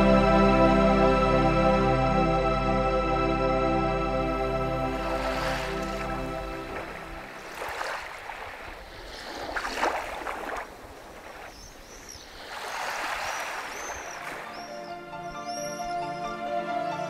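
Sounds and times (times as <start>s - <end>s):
small waves washing onto beach: 4.9s - 14.8s.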